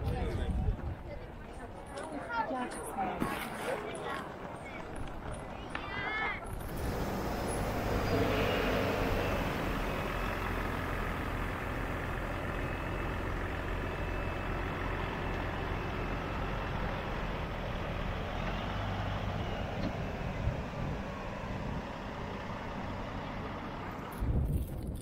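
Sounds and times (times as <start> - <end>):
diesel engine idling: 6.4 - 24.4.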